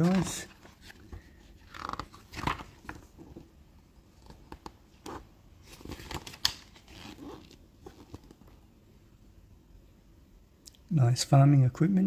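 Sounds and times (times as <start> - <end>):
pages turning: 0.0 - 3.4, 4.2 - 8.6.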